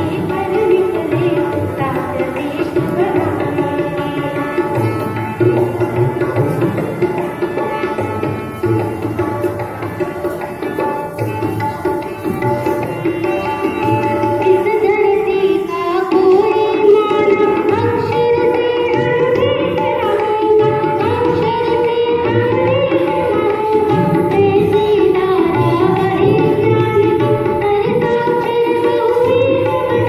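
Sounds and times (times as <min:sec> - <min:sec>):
person singing into a microphone: 0:00.0 - 0:05.2, 0:13.2 - 0:30.0
tabla drum beat: 0:00.0 - 0:30.0.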